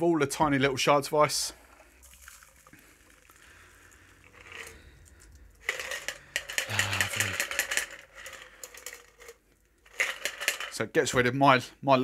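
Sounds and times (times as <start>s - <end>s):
ice rattling in cocktail shaker: 2.0s - 10.8s.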